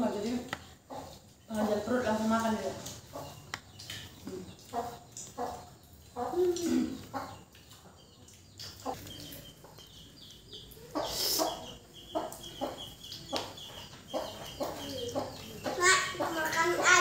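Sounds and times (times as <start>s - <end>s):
chickens clucking: 0.0s - 17.0s.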